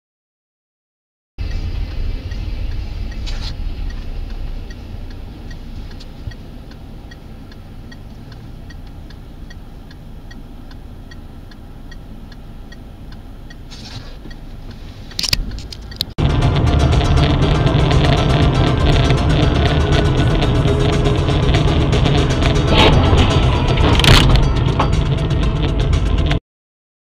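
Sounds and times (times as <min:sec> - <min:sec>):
car turn signal ticking: 0:01.4 - 0:16.2
engine and road rumble: 0:01.4 - 0:26.4.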